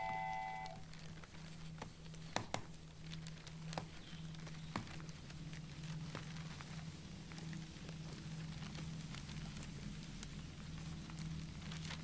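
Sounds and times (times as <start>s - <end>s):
low hum: 0.0s - 1.3s.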